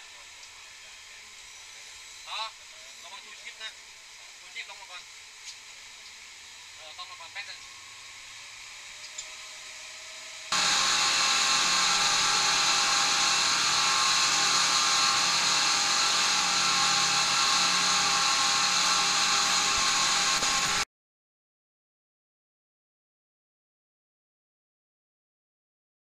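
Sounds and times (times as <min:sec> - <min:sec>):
speedboat engine drone: 0:10.5 - 0:20.8.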